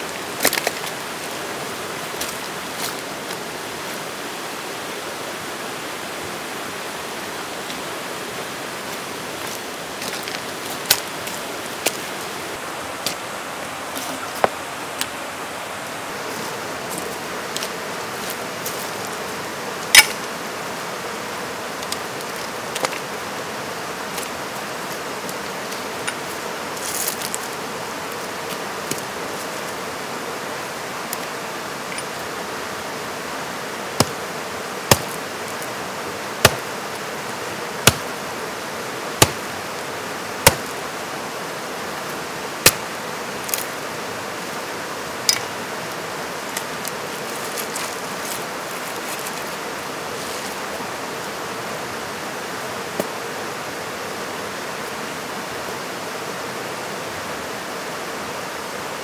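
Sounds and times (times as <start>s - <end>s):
creek rushing over rapids: 0.0s - 59.0s
hatchet chopping wood: 20.0s - 20.2s, 34.0s - 34.2s, 34.9s - 35.2s, 36.4s - 36.7s, 37.8s - 38.1s, 39.2s - 39.4s, 40.4s - 40.7s, 42.6s - 42.9s.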